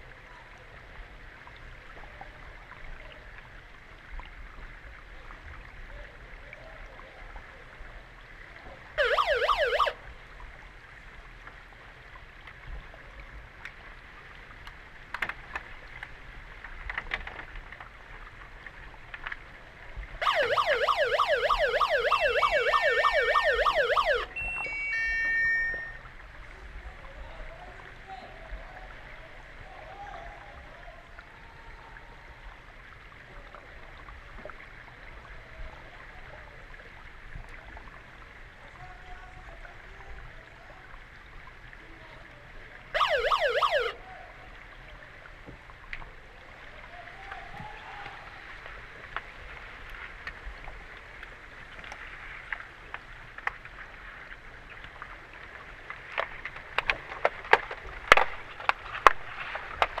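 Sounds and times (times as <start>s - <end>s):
underwater buzzer siren: 9.0s - 10.0s, 20.2s - 26.1s, 43.0s - 44.0s.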